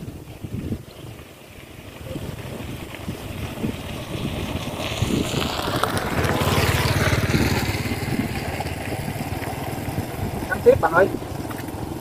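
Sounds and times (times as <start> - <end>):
vehicle engine passing: 1.5 - 12.0.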